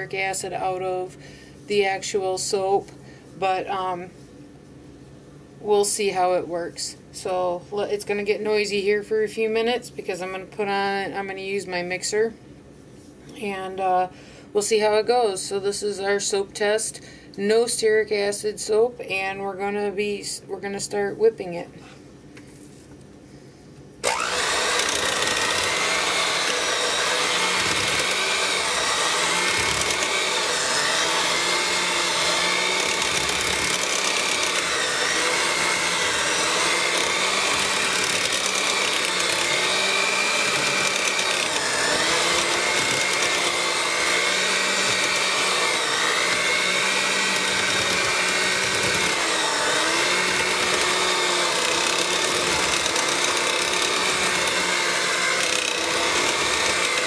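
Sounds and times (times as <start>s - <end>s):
electric hand mixer whine: 24.0s - 57.0s.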